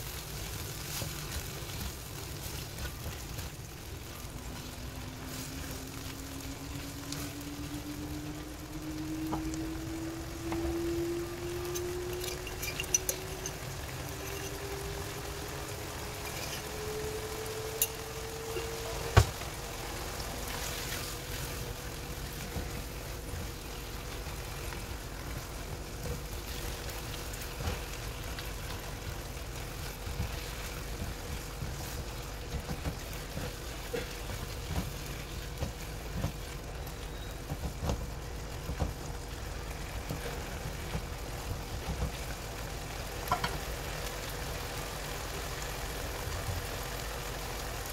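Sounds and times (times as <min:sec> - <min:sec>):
tomatoes frying in a wok: 0:00.0 - 0:47.9
faint rising whine: 0:03.8 - 0:22.9.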